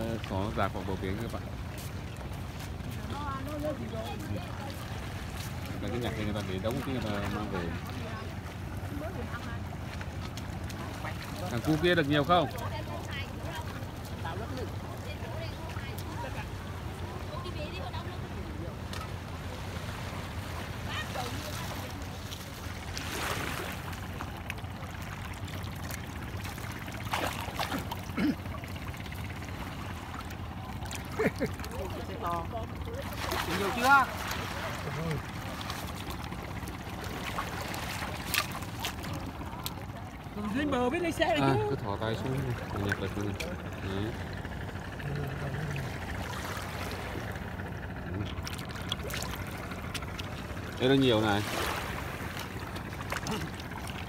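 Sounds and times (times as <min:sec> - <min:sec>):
shallow water splashing: 0:00.0 - 0:54.0
loud water splash: 0:26.5 - 0:28.3.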